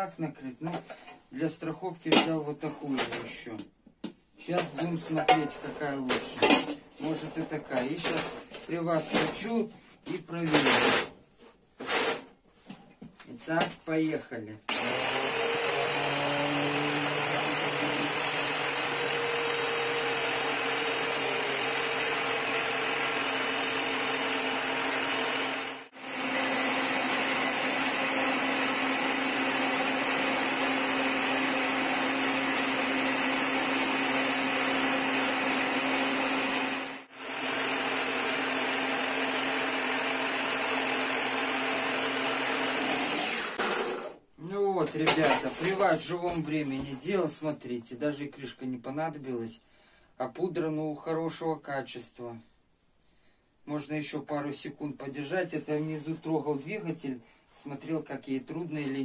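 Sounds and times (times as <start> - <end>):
angle grinder motor running: 14.7 - 44.2.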